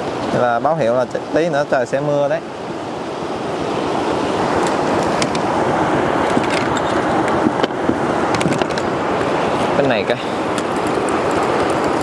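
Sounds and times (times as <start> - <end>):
river water rushing: 0.0 - 12.0.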